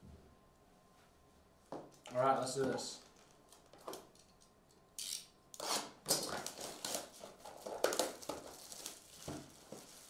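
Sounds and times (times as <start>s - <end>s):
plastic wrap crackling and rustling: 5.6s - 10.0s.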